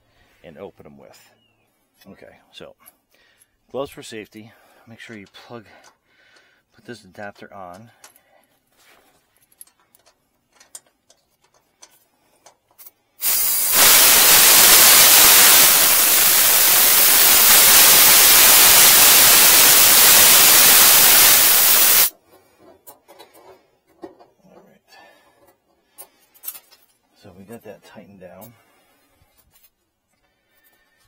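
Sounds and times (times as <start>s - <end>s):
gas hissing from valve: 13.2s - 22.1s.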